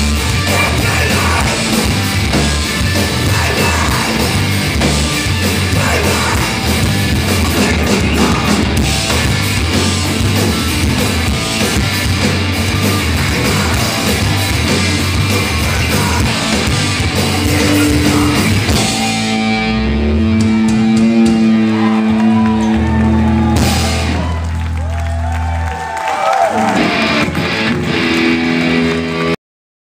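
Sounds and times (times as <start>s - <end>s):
drum kit: 0.0s - 24.8s
bass notes: 0.0s - 25.7s
electric guitar: 0.0s - 29.4s
live rock band playing: 0.0s - 29.4s
person singing: 0.3s - 2.0s, 3.0s - 4.4s, 5.6s - 9.1s, 12.9s - 23.7s.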